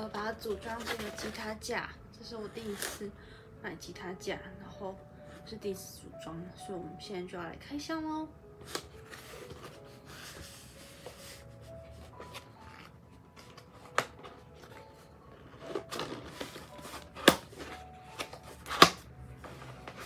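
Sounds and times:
cardboard rustling and scraping: 8.7 - 20.0.

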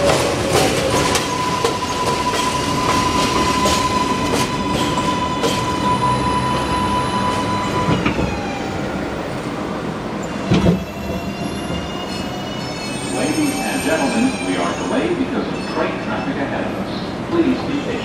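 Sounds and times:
wheel and track rumble: 0.0 - 5.9.

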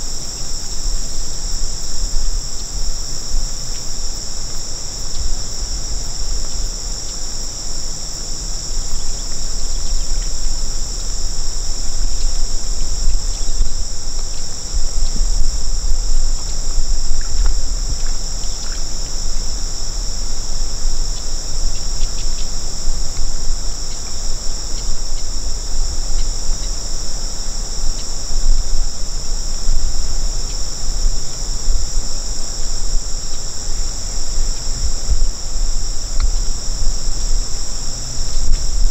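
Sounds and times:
insects chirring: 0.0 - 38.9.

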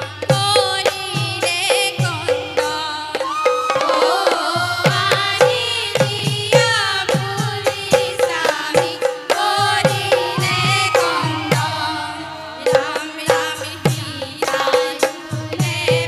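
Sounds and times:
women singing folk song: 0.0 - 16.0
barrel drum strokes: 3.8 - 16.0.

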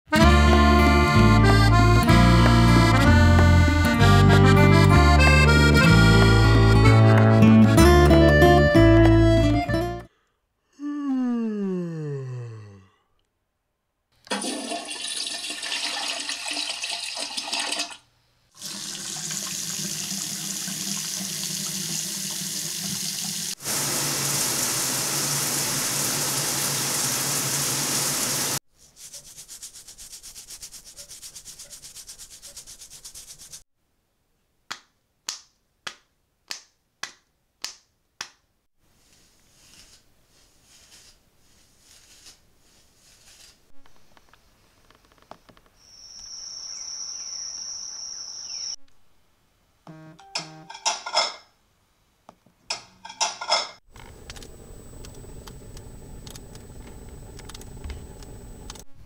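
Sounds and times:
running water: 18.6 - 28.6.

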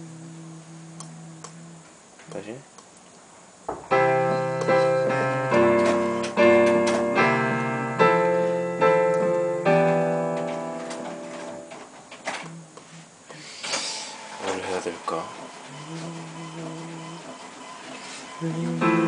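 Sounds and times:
piano chords: 3.7 - 12.0, 18.3 - 19.0.

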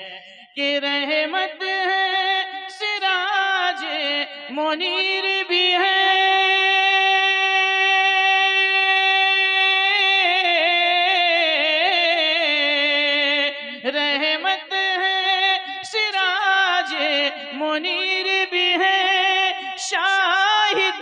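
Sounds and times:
man singing into a microphone: 0.0 - 21.0.

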